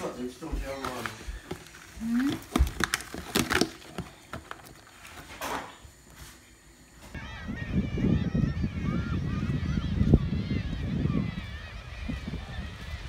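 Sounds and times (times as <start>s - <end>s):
lobsters scrabbling in plastic tub: 0.5s - 5.5s.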